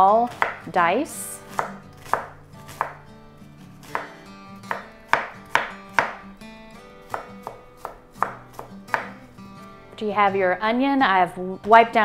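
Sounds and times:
knife chopping on wooden board: 0.3s - 0.7s, 1.5s - 3.1s, 3.8s - 6.2s, 7.0s - 9.2s.

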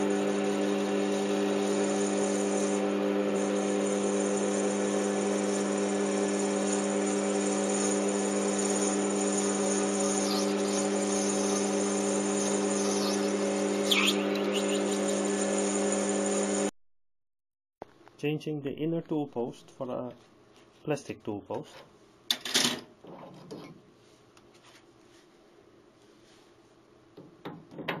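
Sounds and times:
lathe machine humming: 0.0s - 16.7s
boring bar cutting plastic: 6.4s - 15.3s.

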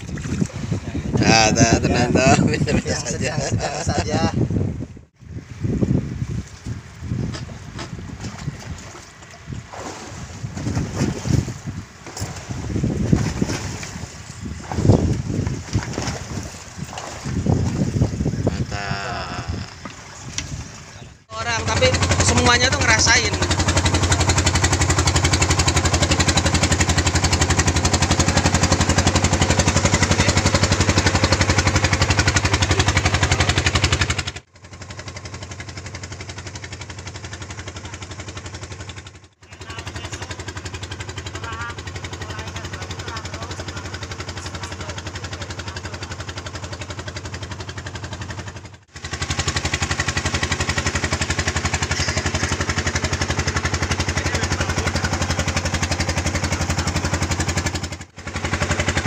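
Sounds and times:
boat engine humming: 0.0s - 59.0s.

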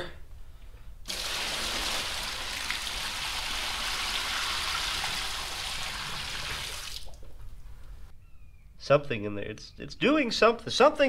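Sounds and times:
liquid pouring into plastic tub: 1.1s - 7.3s.

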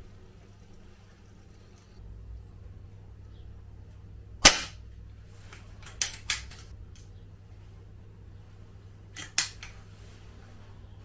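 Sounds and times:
air rifle shot crack: 4.4s - 4.8s.

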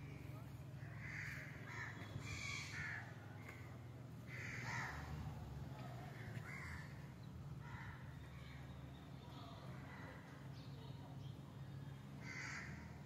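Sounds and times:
crow cawing: 0.8s - 3.1s, 4.3s - 5.2s, 6.2s - 7.0s, 12.2s - 13.0s.

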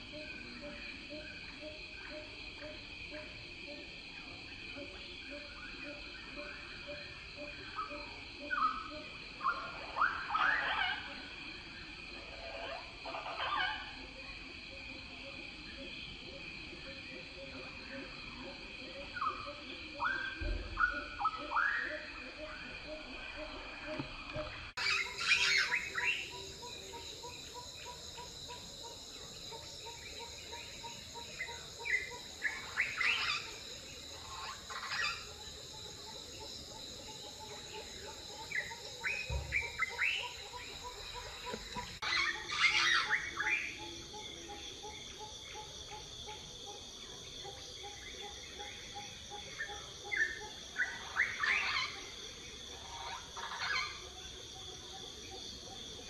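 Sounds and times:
high insect drone: 0.0s - 56.0s
birds chirping: 22.7s - 43.8s.

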